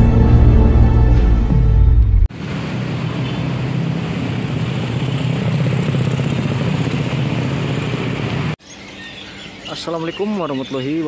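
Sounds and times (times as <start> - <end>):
burst of music: 0.0 - 2.3
road traffic engines: 2.0 - 8.6.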